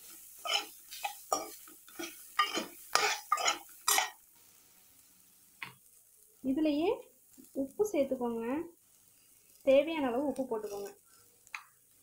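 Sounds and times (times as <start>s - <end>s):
spoon scraping a metal pan: 0.4s - 4.2s.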